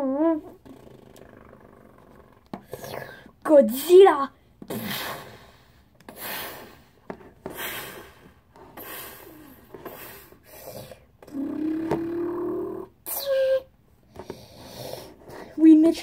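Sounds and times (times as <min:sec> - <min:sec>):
plastic figure rubbing and scraping: 0:00.4 - 0:03.3
boy calling out: 0:03.4 - 0:04.4.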